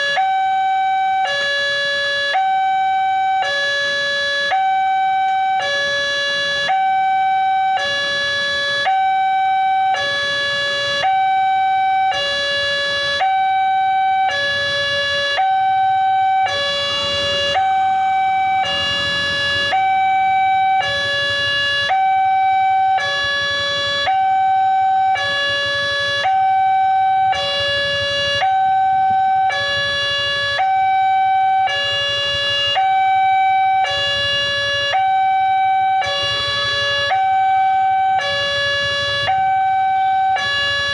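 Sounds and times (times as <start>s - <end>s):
level crossing two-tone alarm: 0.0s - 40.9s.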